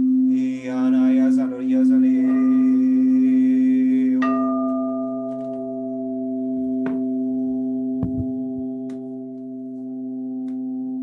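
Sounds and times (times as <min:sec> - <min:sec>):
singing bowl ringing: 0:02.2 - 0:11.0.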